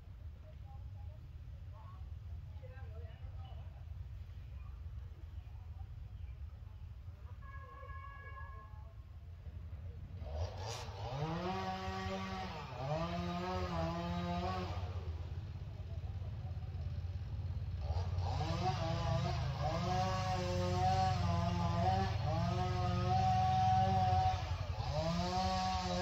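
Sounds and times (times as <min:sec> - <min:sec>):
small engine revving: 0:10.1 - 0:26.0.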